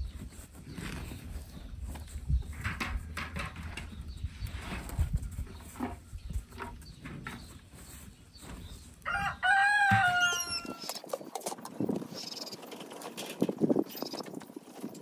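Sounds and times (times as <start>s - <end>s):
wind buffeting the microphone: 0.0s - 15.0s
rooster crowing: 9.0s - 10.8s.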